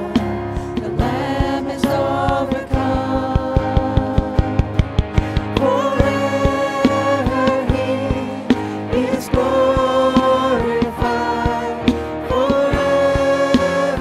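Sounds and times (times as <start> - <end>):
acoustic guitar: 0.0 - 14.0
electric guitar: 0.0 - 14.0
keyboard: 0.0 - 14.0
women singing: 0.0 - 14.0
cajon strikes: 3.4 - 5.6.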